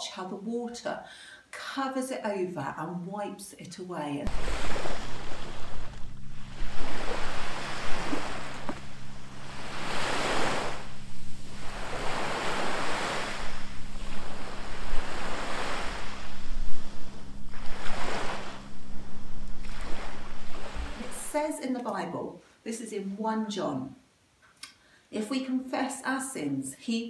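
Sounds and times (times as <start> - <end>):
sea waves washing on beach: 4.3 - 21.4
wind rumbling on microphone: 4.3 - 21.5.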